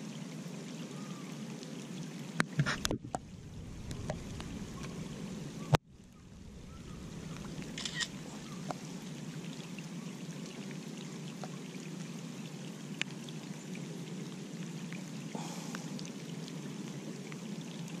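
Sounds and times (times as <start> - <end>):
steady rain: 0.0 - 18.0
raindrops ticking close by: 2.4 - 9.5.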